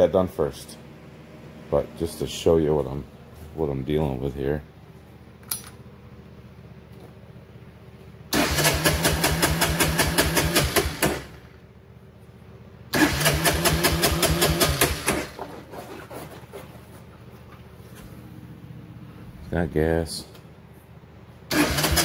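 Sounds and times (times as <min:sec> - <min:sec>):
electric starter cranking engine: 0:08.3 - 0:11.6, 0:12.9 - 0:15.4, 0:21.5 - 0:22.0.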